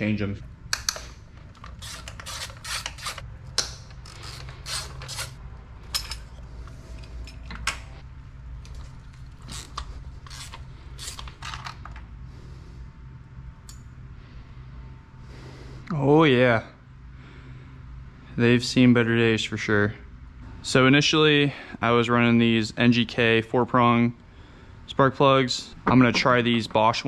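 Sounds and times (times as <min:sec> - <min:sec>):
steady low hum: 0:00.0 - 0:27.0
ratchet clicking: 0:00.7 - 0:05.4.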